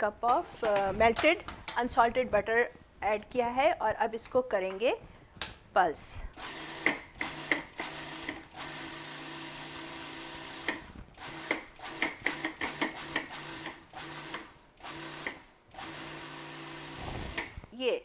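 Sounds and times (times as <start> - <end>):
food processor motor pulsing: 6.4 - 17.6.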